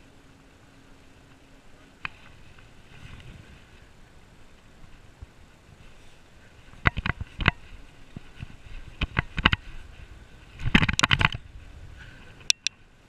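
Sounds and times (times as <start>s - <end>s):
bicycle rattling and clicking: 1.0s - 12.8s.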